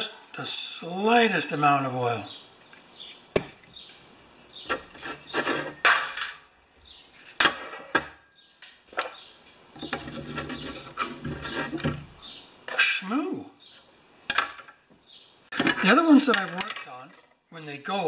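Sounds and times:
metal scraping and rubbing: 0:04.6 - 0:05.9, 0:09.8 - 0:12.3.

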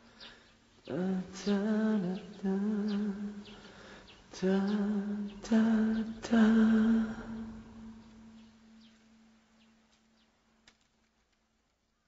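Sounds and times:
person humming: 0:04.3 - 0:08.5.

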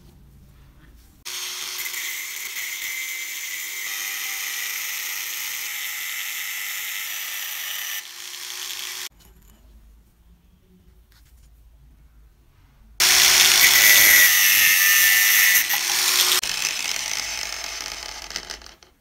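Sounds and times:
angle grinder cutting metal: 0:01.3 - 0:09.1, 0:13.0 - 0:18.9.

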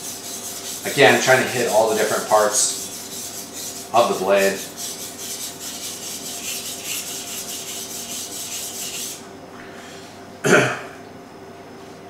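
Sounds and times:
knife rasping on whetstone: 0:00.0 - 0:09.2
person coughing: 0:10.4 - 0:11.0.

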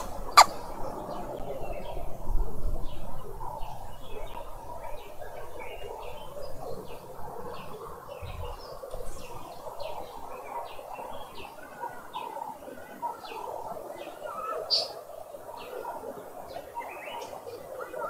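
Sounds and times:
lower bird calls: 0:00.0 - 0:02.0.

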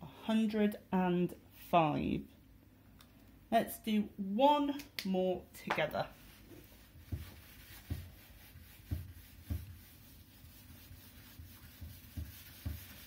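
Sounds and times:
tissue rubbing whiteboard: 0:06.1 - 0:13.0.

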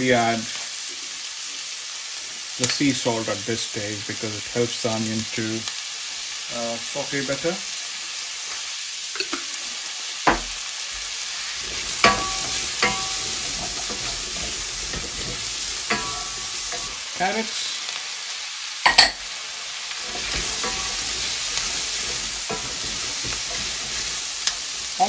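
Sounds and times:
onions sizzling in oil: 0:00.0 - 0:25.0
wooden spoon knocking a pan: 0:10.3 - 0:10.6, 0:11.6 - 0:17.1, 0:20.0 - 0:24.7.

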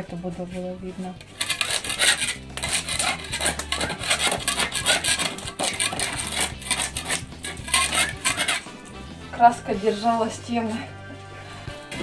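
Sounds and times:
putty knife scraping paint: 0:01.2 - 0:08.7.

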